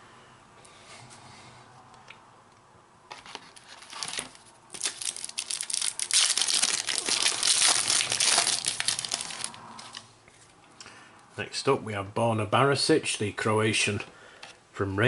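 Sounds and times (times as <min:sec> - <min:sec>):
wrapper crinkling: 0:03.2 - 0:10.0.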